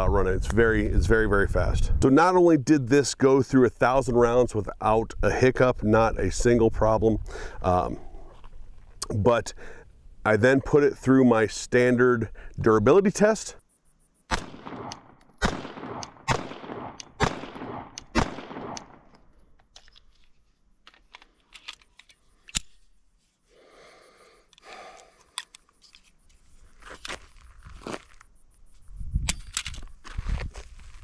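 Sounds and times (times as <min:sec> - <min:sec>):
handgun shots with echo: 0:14.3 - 0:19.1
handling clicks: 0:24.5 - 0:26.0.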